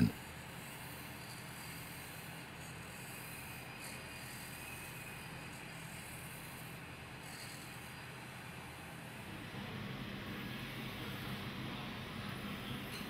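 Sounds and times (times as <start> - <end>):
machinery hum and hiss: 0.0 - 13.0.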